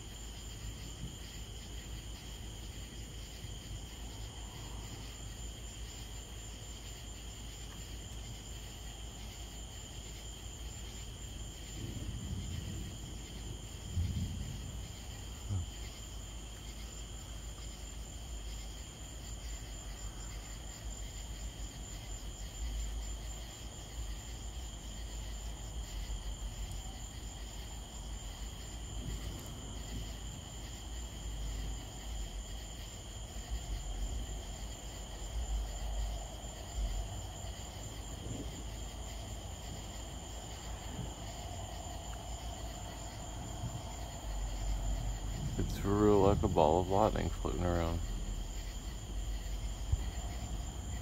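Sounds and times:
night insects chirring: 0.0s - 51.0s
low rumbling noise: 33.4s - 51.0s.

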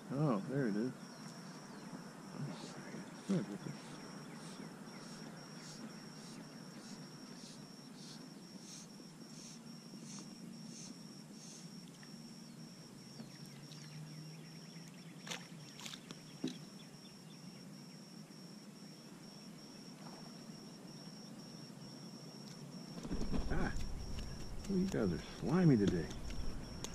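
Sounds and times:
low hush of open water: 23.1s - 26.9s.

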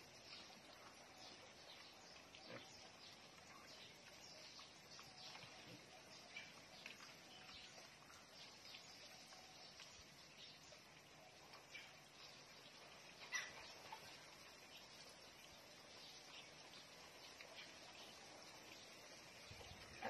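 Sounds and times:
steady low hiss: 0.0s - 20.0s
pigs grunting: 2.3s - 2.9s.

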